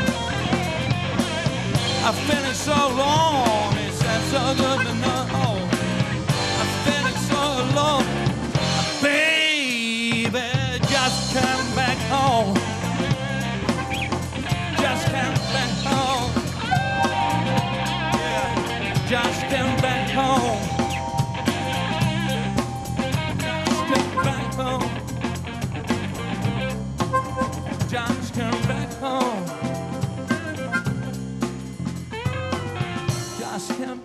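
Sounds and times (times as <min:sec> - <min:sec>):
harmonica: 0:00.0 - 0:05.7, 0:06.3 - 0:08.2, 0:10.9 - 0:24.9, 0:27.0 - 0:28.0, 0:30.1 - 0:31.3
blues band playing live: 0:00.0 - 0:34.0
man singing: 0:01.8 - 0:13.5, 0:14.7 - 0:20.9, 0:23.5 - 0:25.1, 0:27.7 - 0:30.6, 0:33.2 - 0:34.0.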